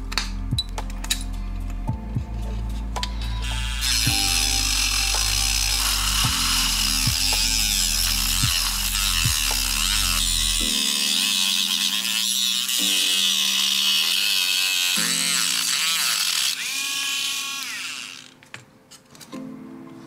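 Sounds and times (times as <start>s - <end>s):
soft background music: 0.0s - 20.0s
rotary tool grinding whine: 3.0s - 18.5s.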